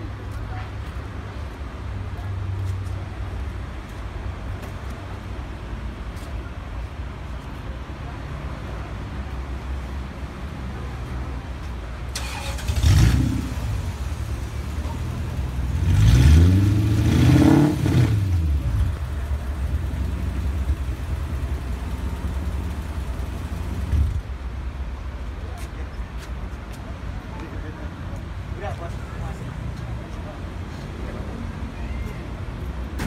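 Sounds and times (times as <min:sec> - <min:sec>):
sports car engine idling and revving: 0:12.4 - 0:24.4.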